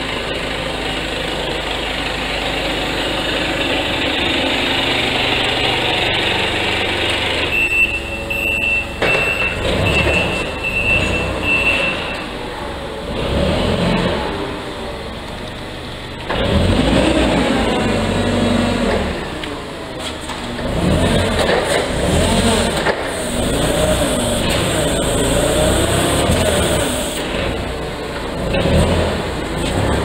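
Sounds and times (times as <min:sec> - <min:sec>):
forklift engine running: 0:00.0 - 0:30.0
reverse alarm beeping: 0:07.4 - 0:12.4.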